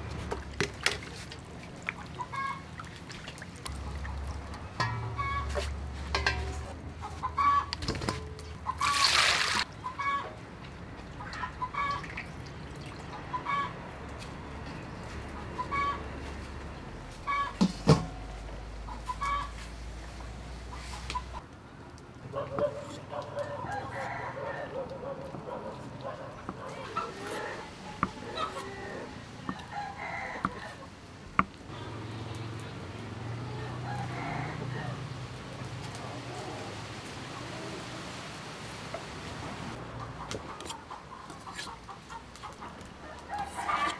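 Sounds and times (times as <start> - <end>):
chickens clucking: 3.8 - 9.0, 9.7 - 10.4, 15.3 - 16.1, 17.2 - 17.6, 18.8 - 19.6, 22.3 - 30.9, 39.7 - 43.9
loud water splash: 8.8 - 9.7
rooster crowing: 23.4 - 24.8, 28.5 - 30.8, 33.6 - 35.1.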